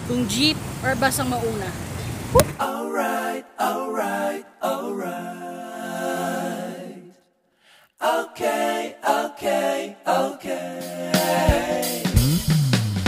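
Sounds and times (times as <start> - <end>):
song with singing voice: 8.0 - 12.2.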